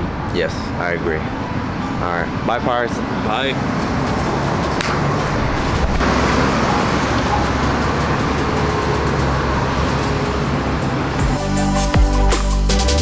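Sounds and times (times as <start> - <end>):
city street traffic: 0.0 - 13.0.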